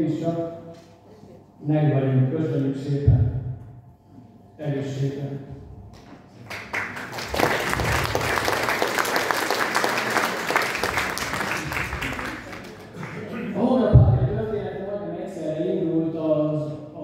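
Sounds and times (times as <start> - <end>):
audience applauding: 6.4 - 13.6.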